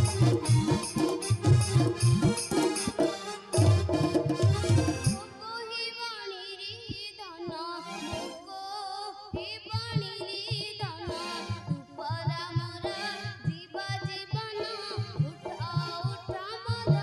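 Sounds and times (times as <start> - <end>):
woman singing devotional melody: 4.7 - 17.0.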